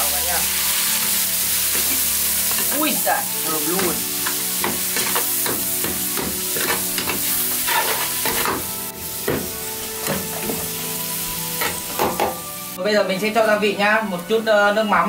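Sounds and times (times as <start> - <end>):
food sizzling in oil: 0.0 - 14.5
spatula scraping pan: 6.4 - 8.7.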